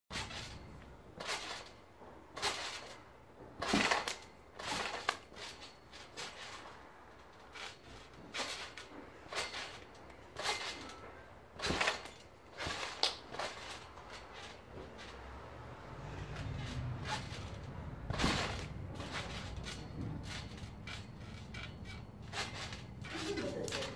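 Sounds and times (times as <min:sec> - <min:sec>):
trampoline bouncing thumps: 0:00.1 - 0:23.9.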